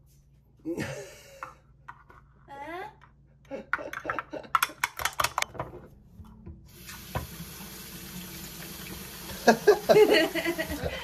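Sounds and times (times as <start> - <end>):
water running from a tap: 6.7 - 11.0.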